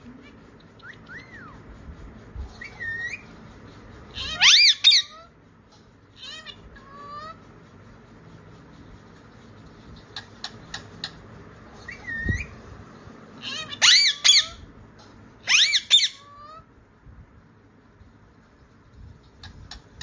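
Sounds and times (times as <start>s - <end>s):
parakeet screeching and whistling: 0.8s - 1.7s, 2.6s - 3.4s, 4.1s - 5.3s, 11.8s - 12.6s, 13.4s - 14.7s, 15.4s - 16.6s.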